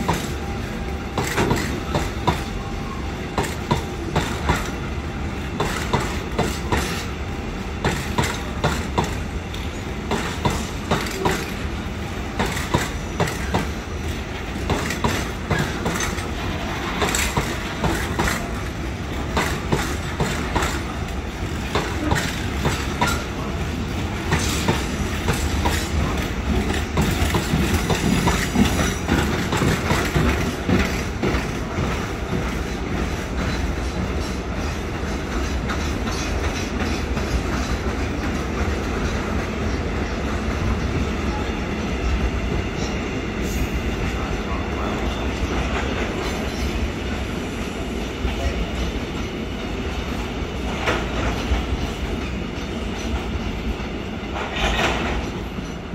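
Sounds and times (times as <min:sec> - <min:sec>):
train rolling past: 0:00.0 - 0:55.9
wheels clacking over rail joints: 0:07.8 - 0:11.6, 0:12.3 - 0:41.0, 0:54.3 - 0:55.8.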